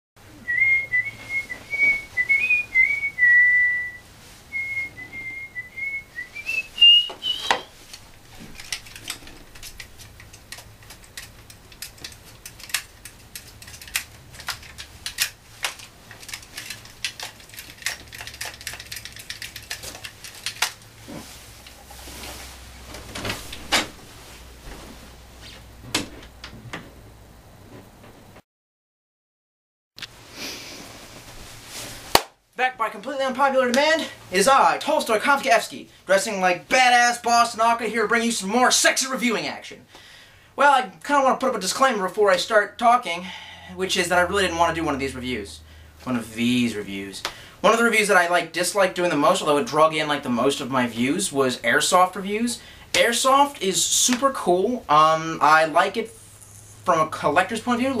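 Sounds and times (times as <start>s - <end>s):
person whistling a tune: 0.4s - 7.7s
clicks and knocks of handling: 7.1s - 21.8s.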